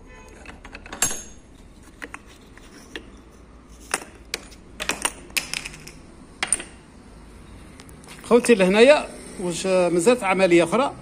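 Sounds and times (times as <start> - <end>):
metal tools clinking and knocking: 0.3 - 6.8.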